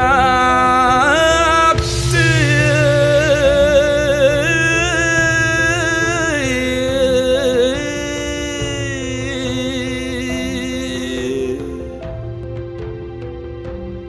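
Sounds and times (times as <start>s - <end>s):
man singing with vibrato: 0.0s - 12.4s
instrumental accompaniment with drone: 0.0s - 14.0s.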